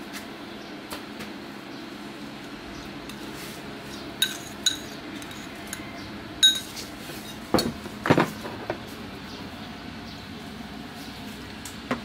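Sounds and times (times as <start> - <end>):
metal spoon clinking on bowl: 4.2 - 6.8
dishes clattering: 4.2 - 8.3.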